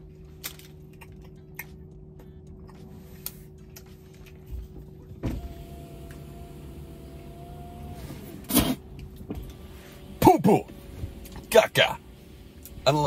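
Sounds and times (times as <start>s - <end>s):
electric window motor whine: 5.2s - 12.9s.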